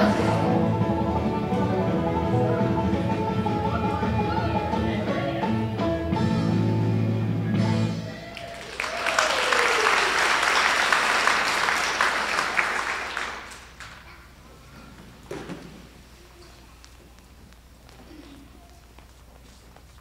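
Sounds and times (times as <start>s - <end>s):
music: 0.0s - 8.4s
audience clapping: 8.2s - 14.3s.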